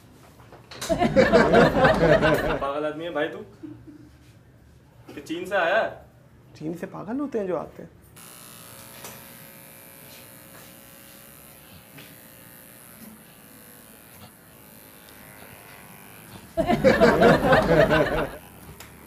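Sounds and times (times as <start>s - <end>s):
electric hair clipper buzzing: 0.8s - 2.7s, 8.2s - 19.0s.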